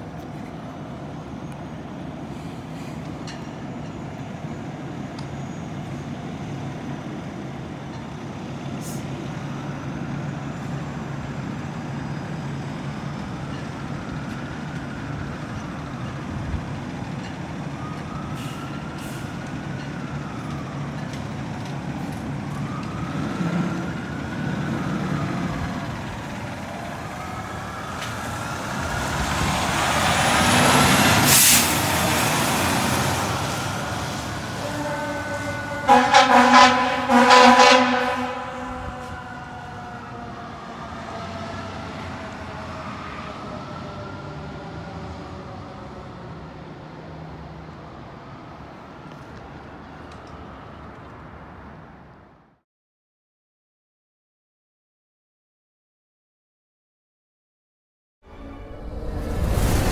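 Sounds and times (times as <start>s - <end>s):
siren wailing: 9.2s - 31.1s, 32.2s - 46.3s
loud hiss: 31.2s - 32.0s.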